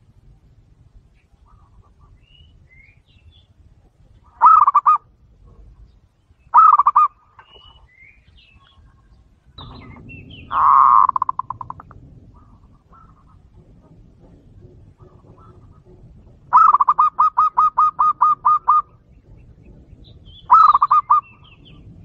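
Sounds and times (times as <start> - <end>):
dove cooing: 4.2 - 5.9, 6.5 - 7.8, 8.7 - 22.0
faint high bird chirps: 5.8 - 13.3.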